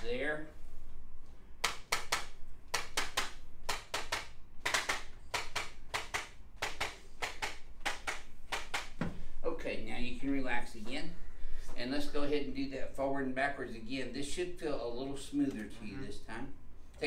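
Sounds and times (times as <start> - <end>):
sharp mechanical clicks: 1.6 - 9.0.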